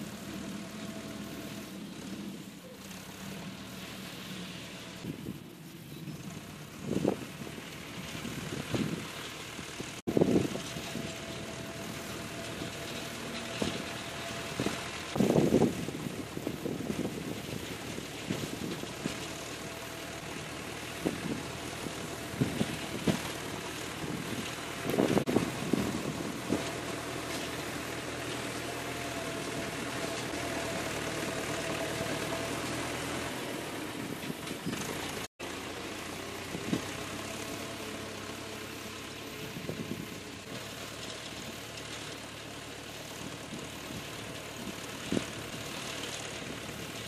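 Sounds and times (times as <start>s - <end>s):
tractor diesel engine running: 0.0s - 47.0s
wind buffeting microphone: 6.1s - 9.2s, 9.9s - 13.9s, 14.5s - 19.3s, 21.0s - 26.8s, 39.4s - 40.2s.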